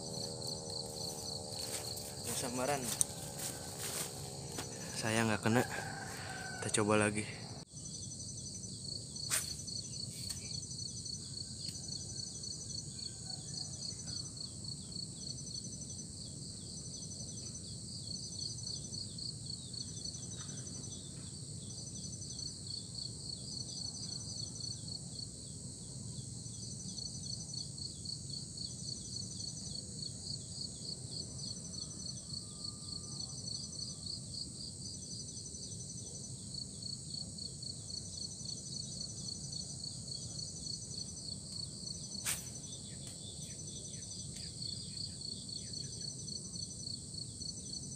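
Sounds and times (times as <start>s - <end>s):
insect call in short notes: 0.0s - 7.6s, 9.2s - 12.2s
insects pulsing trill: 0.0s - 47.9s
low outdoor background noise: 0.0s - 47.9s.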